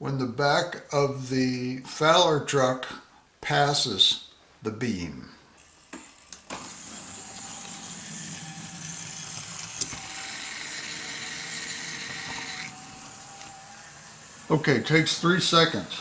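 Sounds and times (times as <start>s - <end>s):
small electric motor whirring: 5.6s - 16.0s.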